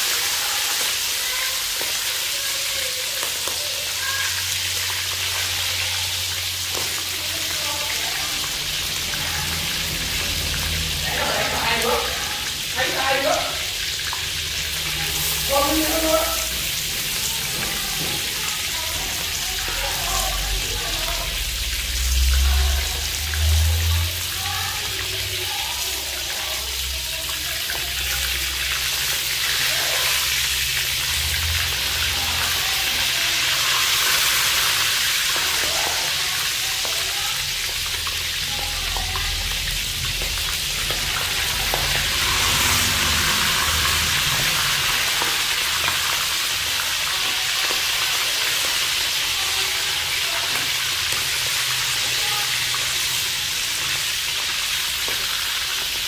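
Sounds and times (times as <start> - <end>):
frog sizzling in hot oil: 0.0 - 56.0.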